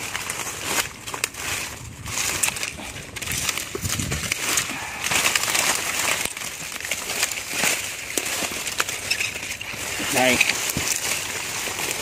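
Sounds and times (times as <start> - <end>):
dry leaves and twigs crackling: 0.0 - 12.0
leaves brushing microphone: 0.0 - 12.0.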